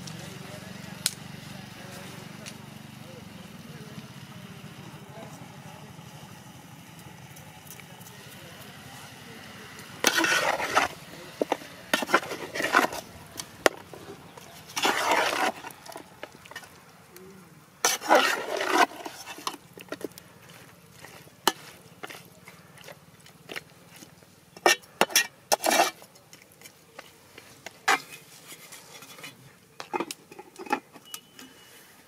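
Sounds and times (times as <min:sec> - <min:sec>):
metal spoon scraping pot: 0:10.0 - 0:16.8, 0:17.8 - 0:31.7.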